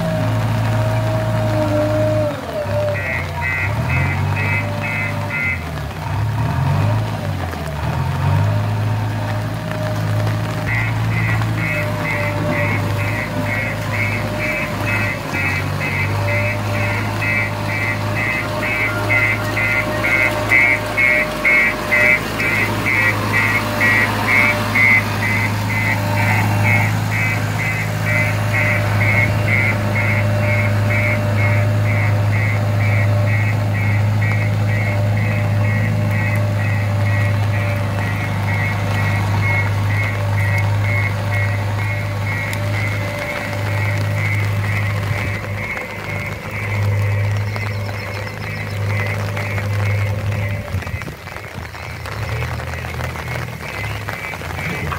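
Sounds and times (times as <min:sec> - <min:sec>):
diesel engine running: 0:00.0 - 0:54.9
reverse alarm beeping: 0:10.6 - 0:51.1.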